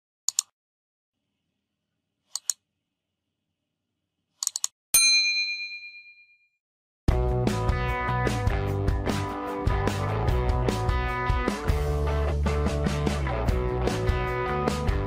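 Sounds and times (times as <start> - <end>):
bright bell ding: 5.0 - 6.5
guitar music: 7.1 - 15.0.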